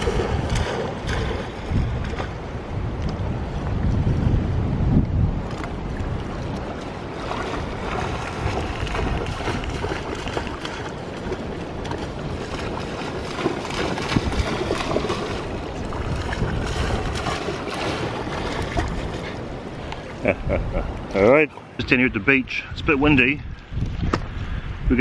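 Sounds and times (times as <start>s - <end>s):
dog splashing through water: 0.0s - 2.5s, 5.5s - 19.8s
wind rumbling on microphone: 0.0s - 25.0s.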